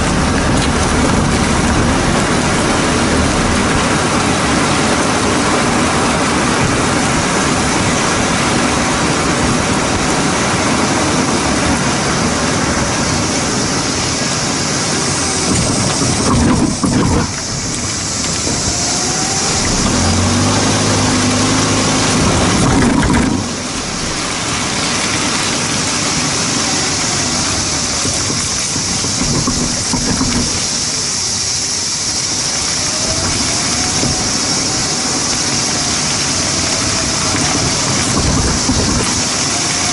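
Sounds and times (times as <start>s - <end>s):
suspension knocks: 0.0s - 5.3s, 15.0s - 25.4s, 26.7s - 31.0s, 35.8s - 39.9s
low hum: 0.0s - 7.9s, 13.5s - 30.6s
tyre rolling on pavement: 0.0s - 9.8s, 14.1s - 31.1s, 32.2s - 39.9s.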